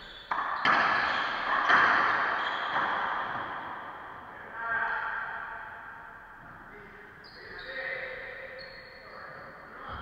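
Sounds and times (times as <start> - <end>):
racquet hitting ball: 0.1 - 4.2
ball hitting court walls: 0.3 - 3.8.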